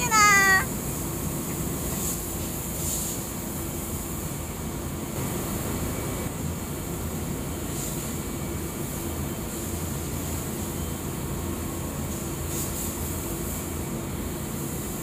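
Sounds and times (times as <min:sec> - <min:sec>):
hiss of air: 0:00.0 - 0:10.8, 0:11.6 - 0:15.0
spray machine rumble and hum: 0:11.4 - 0:15.0.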